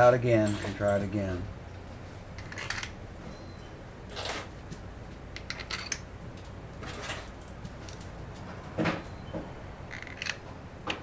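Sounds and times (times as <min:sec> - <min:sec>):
steel screws clinking and rattling: 0:00.3 - 0:01.2, 0:02.4 - 0:03.0, 0:05.4 - 0:06.1, 0:09.9 - 0:10.6.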